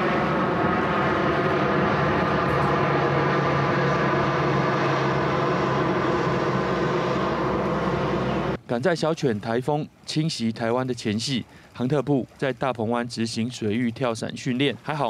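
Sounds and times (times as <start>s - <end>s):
propeller plane droning overhead: 0.0s - 8.6s.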